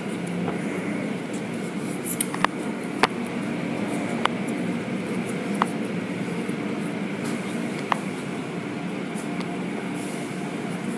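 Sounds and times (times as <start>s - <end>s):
car wash machinery and water spray: 0.0s - 10.9s.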